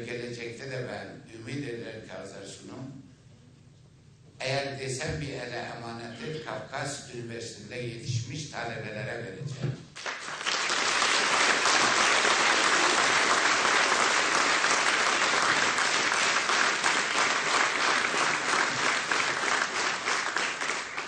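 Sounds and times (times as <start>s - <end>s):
audience applause: 10.0s - 21.0s.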